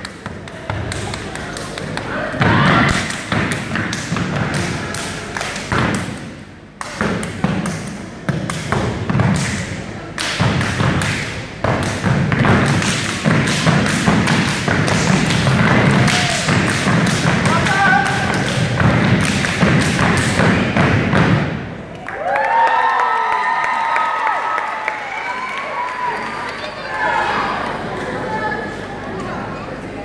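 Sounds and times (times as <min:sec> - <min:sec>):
clapping and body slapping: 0:00.0 - 0:02.1, 0:02.9 - 0:21.4.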